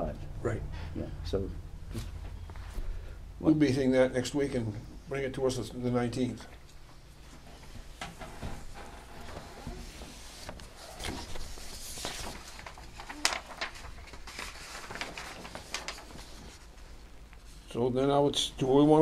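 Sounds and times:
low room hum: 0.0 - 19.0
papers rustling and shuffling: 6.5 - 17.6.

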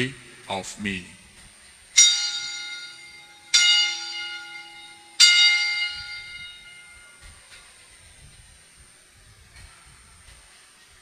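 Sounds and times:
altar bell ringing: 2.0 - 7.2.

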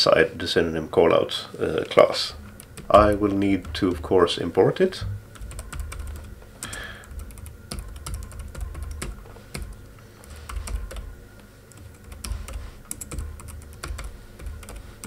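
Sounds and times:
keyboard typing clicks: 5.3 - 11.1, 11.7 - 14.8.

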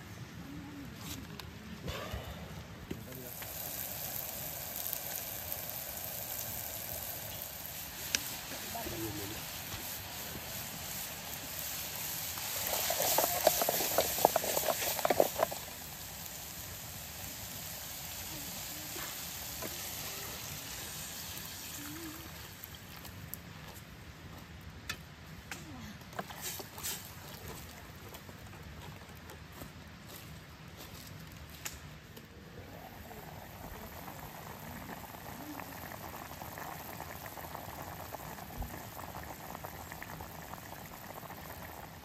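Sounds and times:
water simmering: 2.5 - 23.7, 32.3 - 42.0
stick stirring pan: 6.3 - 16.2.

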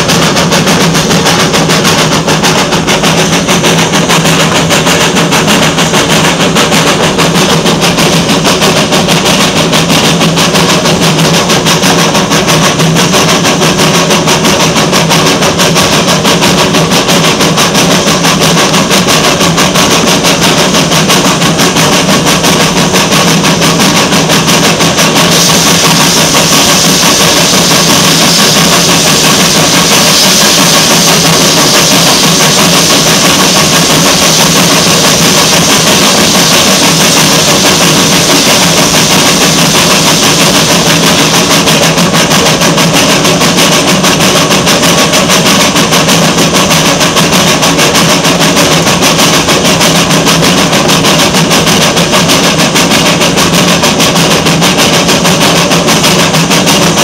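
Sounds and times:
steam locomotive exhaust beat: 0.0 - 57.0.

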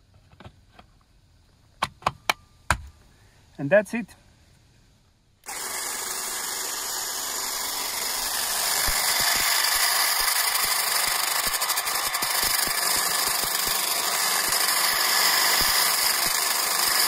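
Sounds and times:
patio cleaner brush whirring: 5.5 - 17.0.

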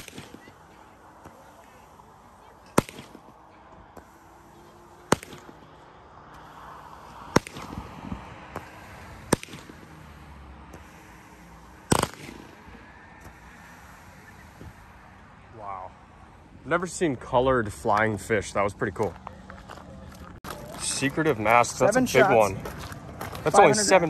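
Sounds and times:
loud firework shots: 0.0 - 1.9, 2.6 - 5.9, 7.0 - 14.4.

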